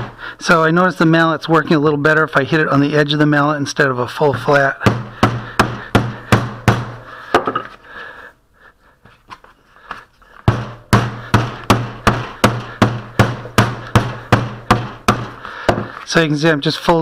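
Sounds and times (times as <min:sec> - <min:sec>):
mallet knocking on putty: 0:04.3 - 0:07.0, 0:10.5 - 0:15.9.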